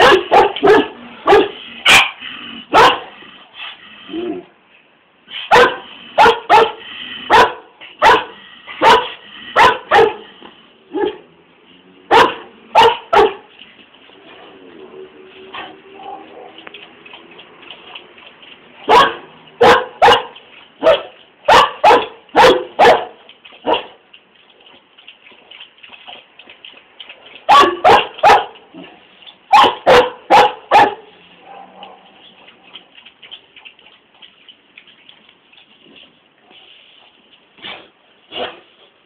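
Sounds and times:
dog barking: 0.0s - 3.1s, 5.5s - 10.2s, 12.1s - 13.5s, 18.9s - 24.0s, 27.5s - 28.6s, 29.5s - 32.1s.

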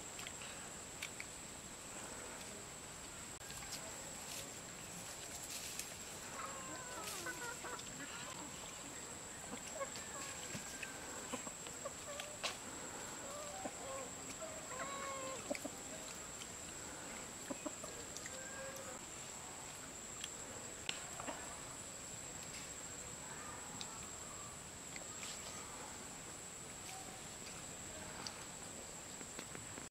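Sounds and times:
chickens clucking: 6.0s - 19.1s.

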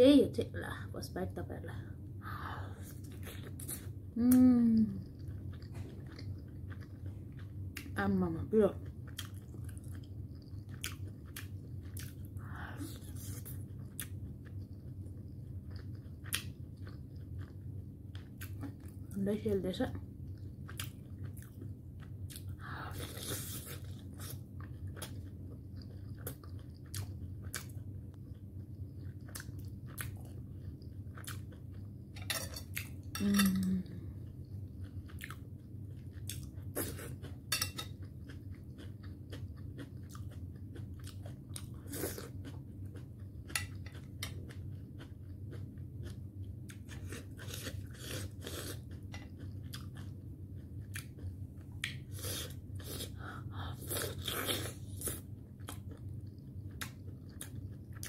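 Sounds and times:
steady low hum: 0.0s - 58.0s
chewing food: 4.8s - 19.2s, 19.9s - 58.0s.

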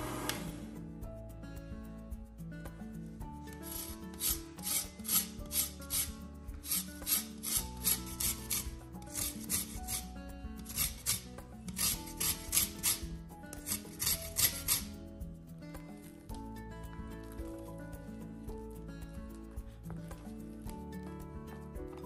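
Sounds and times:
soft background music: 0.0s - 22.0s
grater rasping on lemon rind: 3.6s - 15.0s.

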